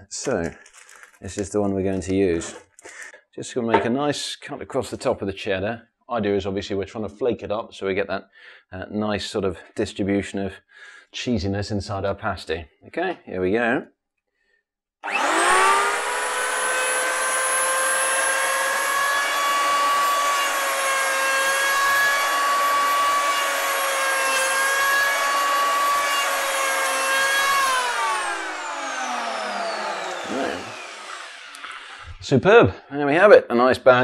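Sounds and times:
electric plane whining: 0:15.0 - 0:32.2.

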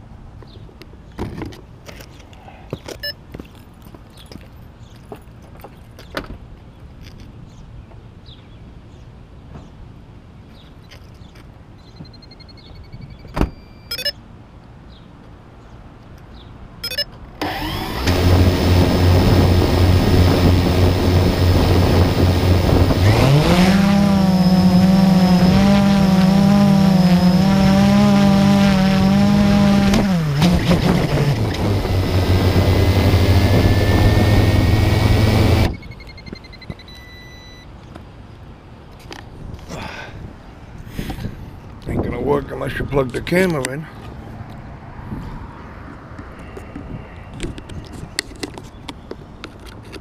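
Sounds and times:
motor running close: 0:17.4 - 0:35.8.

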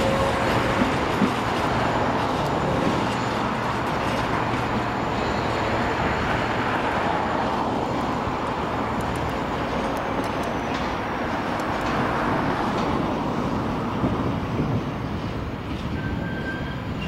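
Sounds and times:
diesel locomotive working: 0:00.0 - 0:17.0
train wheels rumbling on rails: 0:00.0 - 0:17.0.

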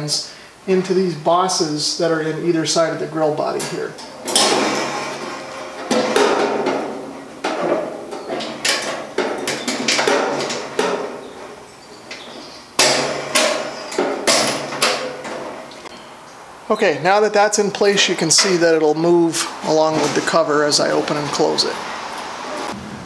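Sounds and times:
metal rack knocking on grill: 0:03.6 - 0:15.9.

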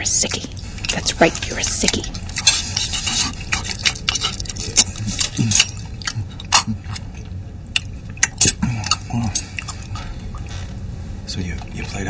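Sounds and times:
people chewing: 0:00.0 - 0:12.0
low falling vocal sounds: 0:04.5 - 0:07.3, 0:08.4 - 0:10.5.

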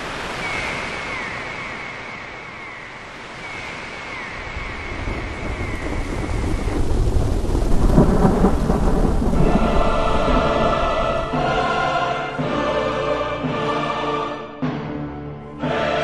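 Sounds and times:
rain hiss: 0:00.0 - 0:12.2
thunder rumbling: 0:04.4 - 0:12.0.

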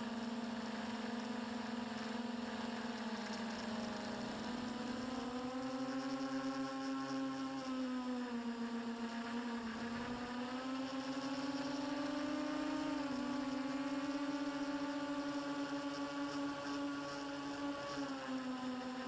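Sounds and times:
model aircraft motor whine: 0:00.0 - 0:19.0.

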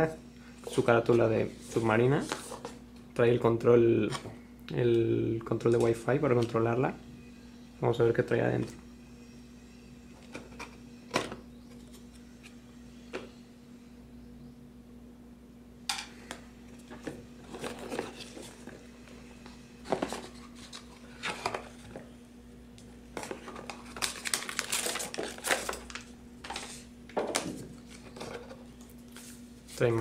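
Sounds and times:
packaging rustling and crinkling: 0:23.2 - 0:29.9.

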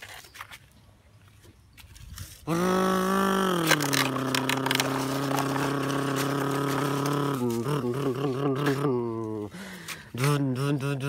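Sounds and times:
person holding a low note: 0:02.5 - 0:09.4.

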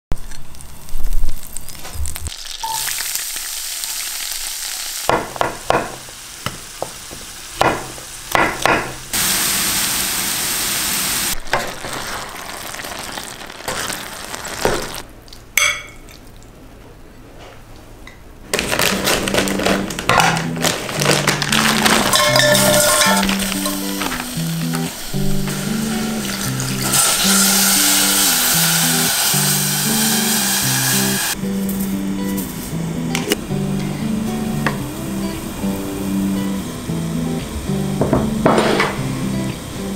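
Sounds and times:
onions sizzling in a frying pan: 0:00.2 - 0:15.0, 0:19.3 - 0:33.0, 0:33.7 - 0:39.9
plastic bag crackling: 0:11.4 - 0:15.0, 0:18.5 - 0:27.5.

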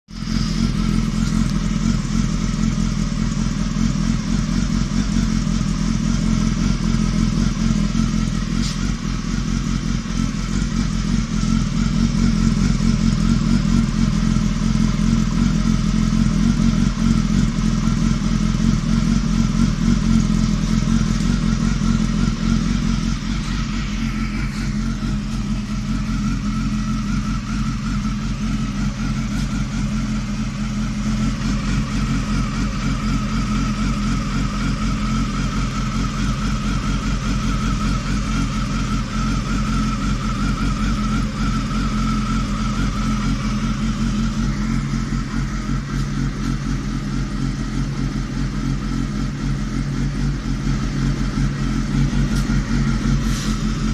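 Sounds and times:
motorcycle engine idling: 0:00.0 - 0:53.9.

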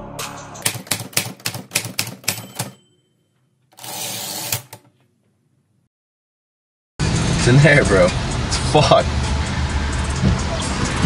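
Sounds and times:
typewriter keys clacking: 0:00.6 - 0:02.8.

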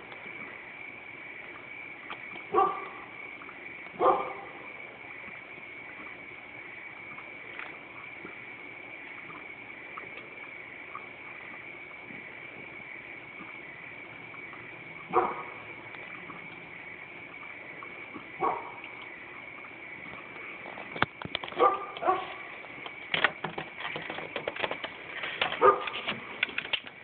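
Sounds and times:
steady high whine: 0:00.0 - 0:27.0
sharp clicks and knocks: 0:22.8 - 0:27.0.

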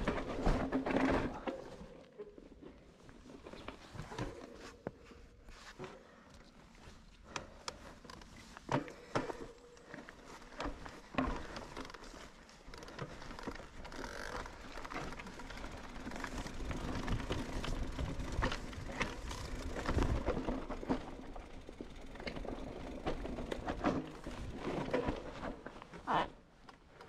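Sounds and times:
bicycle clicking and rattling: 0:00.0 - 0:01.5, 0:07.2 - 0:26.0
steady rustling noise: 0:00.0 - 0:26.0.

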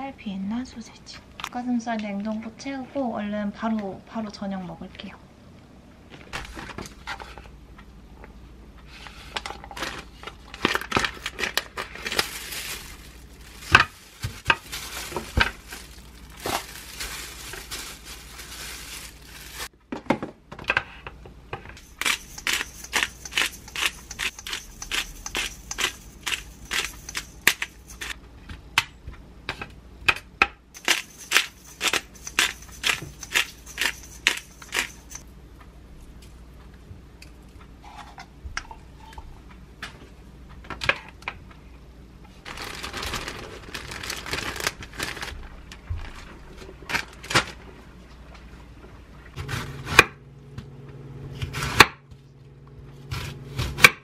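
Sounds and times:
plastic packaging crinkling and tearing: 0:09.8 - 0:19.7, 0:21.8 - 0:28.2, 0:30.8 - 0:35.2, 0:42.4 - 0:47.6
pepper grinder clicking: 0:21.8 - 0:28.2, 0:30.8 - 0:35.2.

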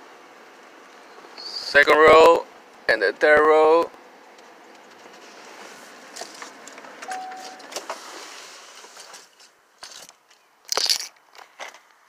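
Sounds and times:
short steady beep: 0:07.1 - 0:07.7.

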